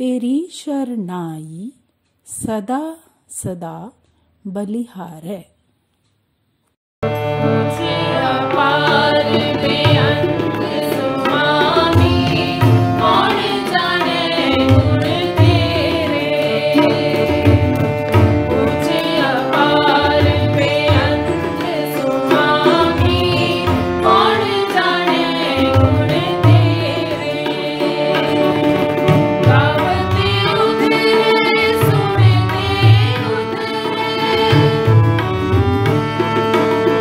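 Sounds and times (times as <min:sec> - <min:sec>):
ornamented melody with drone: 0:07.0 - 0:36.3
tabla beat: 0:07.0 - 0:37.0.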